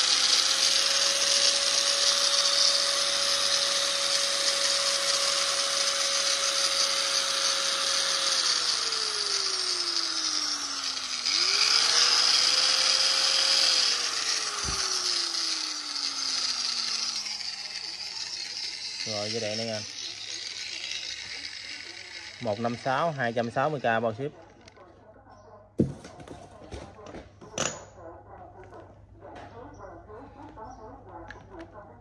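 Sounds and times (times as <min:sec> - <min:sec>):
angle grinder whining: 0:00.0 - 0:24.9.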